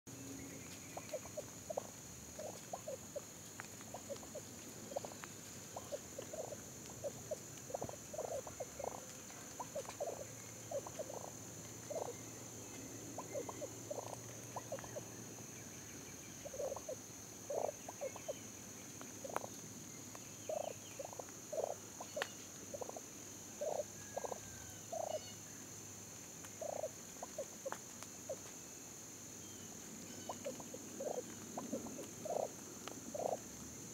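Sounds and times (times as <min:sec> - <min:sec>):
turkeys calling: 0:00.9 - 0:12.2, 0:13.1 - 0:15.1, 0:16.4 - 0:18.4, 0:19.2 - 0:19.5, 0:20.5 - 0:23.0, 0:23.6 - 0:25.4, 0:26.6 - 0:28.4, 0:30.0 - 0:33.4.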